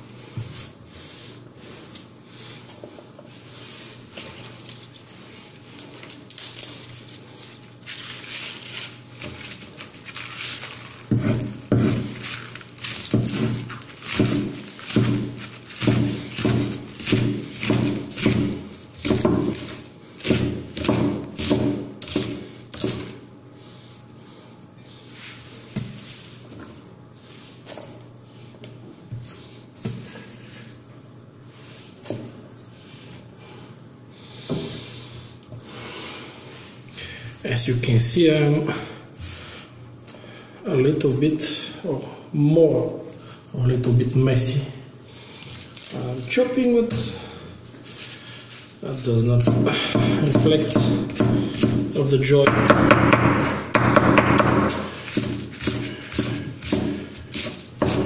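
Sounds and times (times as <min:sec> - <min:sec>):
cleaver chopping on wooden board: 0:11.1 - 0:12.1, 0:13.0 - 0:23.1, 0:49.4 - 0:58.0.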